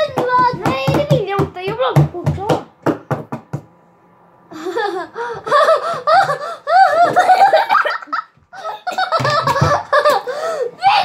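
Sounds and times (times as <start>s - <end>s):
children laughing and giggling: 4.5s - 11.0s.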